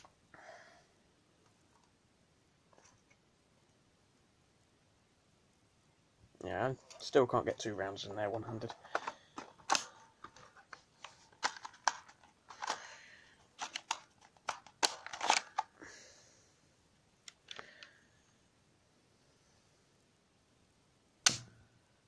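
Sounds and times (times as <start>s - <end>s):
plastic toy pistol clicks: 21.3s - 21.5s.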